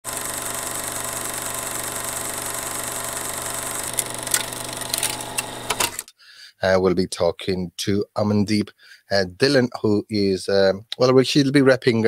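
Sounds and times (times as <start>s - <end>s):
sharp clicks: 3.8s - 6.1s.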